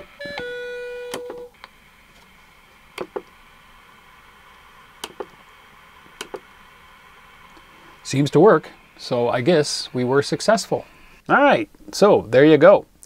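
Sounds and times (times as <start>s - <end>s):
faint steady hiss: 0.0s - 13.0s
sharp clicks: 3.0s - 3.4s, 5.0s - 5.4s, 6.2s - 6.4s
steady electronic tone: 6.7s - 11.6s.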